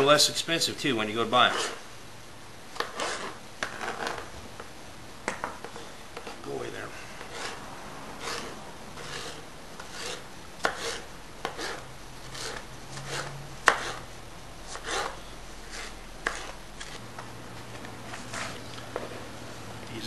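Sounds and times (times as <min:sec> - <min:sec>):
knife chopping on cutting board: 0:08.2 - 0:14.0, 0:14.7 - 0:17.0.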